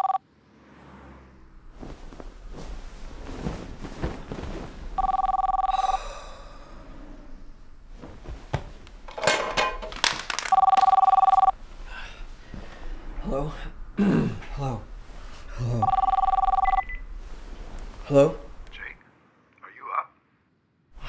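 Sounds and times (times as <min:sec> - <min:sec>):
telephone ringing: 0:00.0 - 0:00.2, 0:05.0 - 0:06.0, 0:10.4 - 0:11.6, 0:15.8 - 0:17.1
bedclothes rustling: 0:01.6 - 0:13.3, 0:14.3 - 0:18.8.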